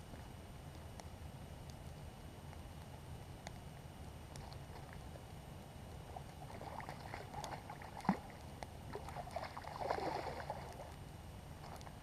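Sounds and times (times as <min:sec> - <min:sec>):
water splashing: 0:06.1 - 0:11.0.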